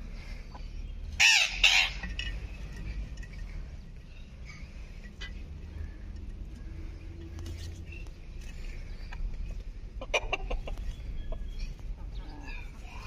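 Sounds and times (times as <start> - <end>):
hen clucking: 10.0 - 11.5.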